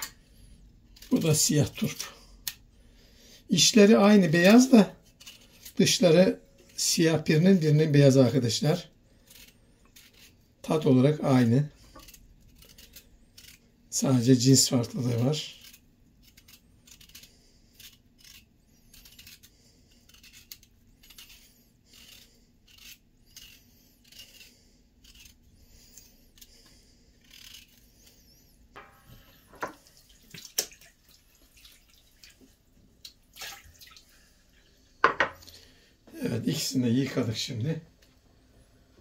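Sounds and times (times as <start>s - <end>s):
knife scraping radish skin: 0.9s - 2.6s, 3.6s - 28.5s.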